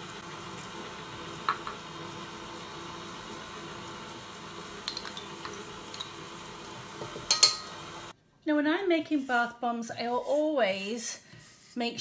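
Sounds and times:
stand mixer humming: 0:00.0 - 0:08.1.

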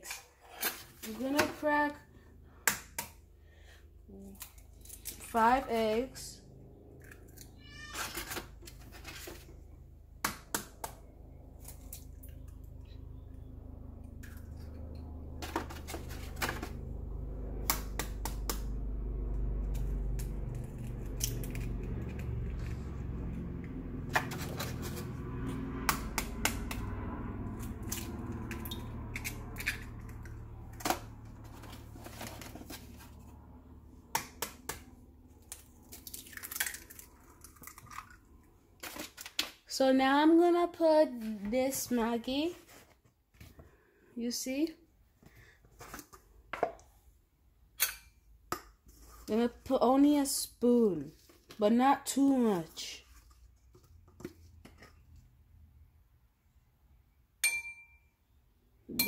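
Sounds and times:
low rumble: 0:11.1 - 0:34.1
eggs cracking against bowl: 0:35.4 - 0:39.0.

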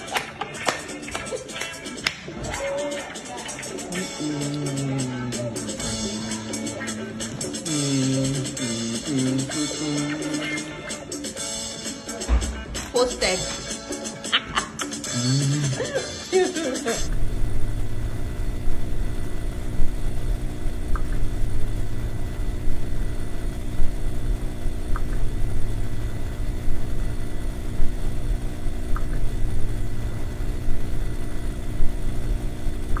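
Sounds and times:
low electronic drone: 0:03.8 - 0:11.0, 0:17.0 - 0:33.0.

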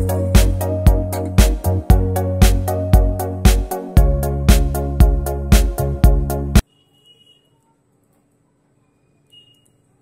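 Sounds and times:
background music with steady beat: 0:00.0 - 0:06.7.

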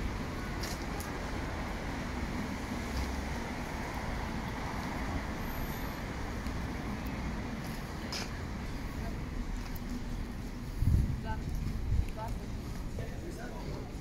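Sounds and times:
city street traffic: 0:00.0 - 0:14.0.

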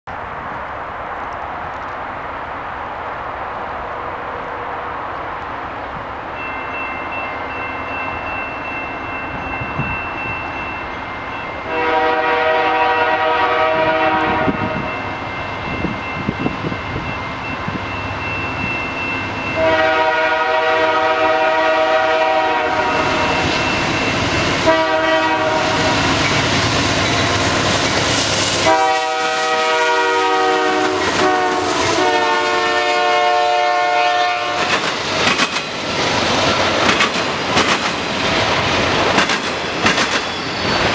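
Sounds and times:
train wagons rumbling past: 0:00.1 - 0:40.9
train air horn blasts: 0:11.6 - 0:15.0, 0:19.5 - 0:23.6, 0:24.6 - 0:26.2, 0:28.6 - 0:34.8.

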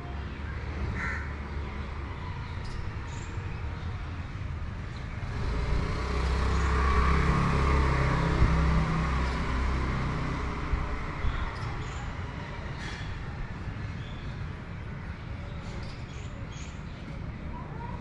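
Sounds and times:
vehicle passing by: 0:05.2 - 0:13.7.

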